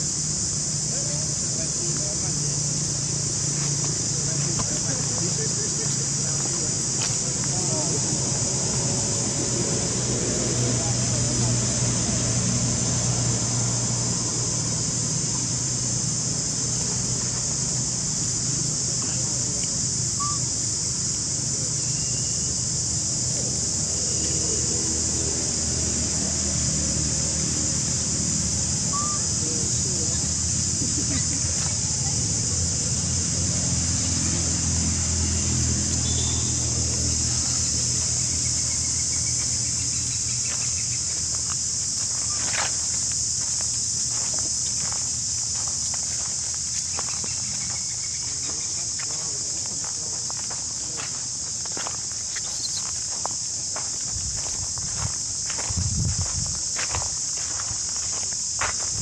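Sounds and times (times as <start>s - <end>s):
high drone of insects: 0.0s - 59.0s
high hiss: 51.3s - 55.6s.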